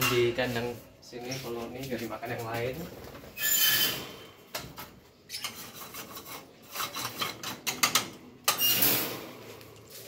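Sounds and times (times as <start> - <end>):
wire cage scraping and clattering: 3.2 - 10.0.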